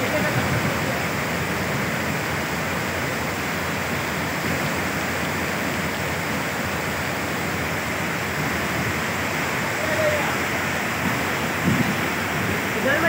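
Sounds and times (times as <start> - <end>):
heavy rain: 0.0 - 13.0
rushing floodwater: 0.0 - 13.0.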